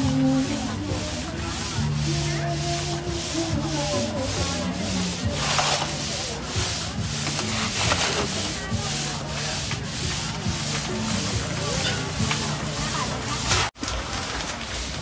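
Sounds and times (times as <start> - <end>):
ice scraping against glass bottles: 4.6 - 14.0.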